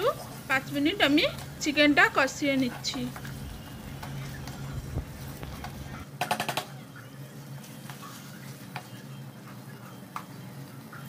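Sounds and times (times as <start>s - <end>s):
low steady hum: 0.0s - 6.0s.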